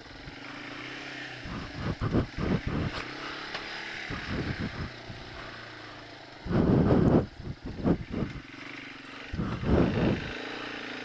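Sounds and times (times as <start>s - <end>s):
atv engine running: 0.0s - 11.0s
thumps over rough trail: 1.4s - 5.6s, 6.4s - 8.4s, 9.3s - 10.4s.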